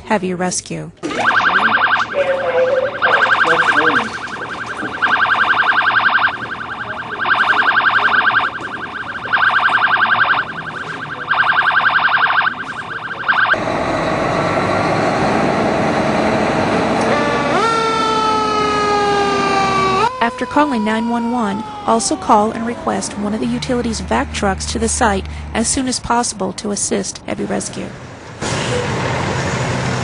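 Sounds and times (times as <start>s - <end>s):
buzzing alarm: 1.0s - 14.2s, 17.5s - 24.6s
fire truck siren wailing: 1.0s - 25.4s
fire truck engine running: 1.0s - 30.0s.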